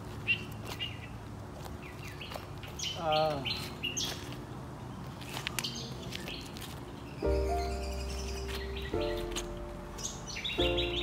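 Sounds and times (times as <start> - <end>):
wild birds chirping: 7.0 - 11.0.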